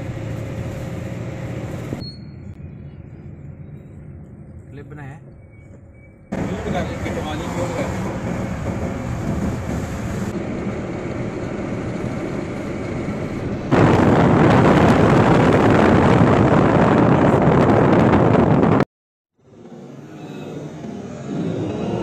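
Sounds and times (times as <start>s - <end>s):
car cabin road noise: 0.0s - 18.8s
wind and traffic at open window: 0.0s - 18.8s, 19.4s - 22.0s.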